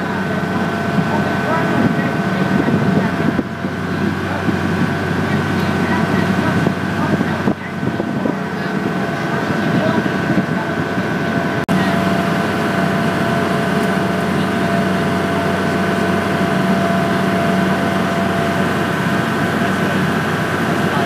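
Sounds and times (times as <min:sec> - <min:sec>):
boat engine drone: 0:00.0 - 0:21.0
rush of water and air: 0:00.0 - 0:21.0.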